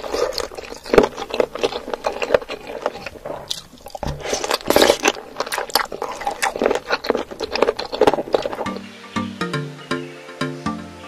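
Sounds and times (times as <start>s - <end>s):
crunching of cartilage: 0.0s - 8.8s
wet chewing and smacking: 0.0s - 8.8s.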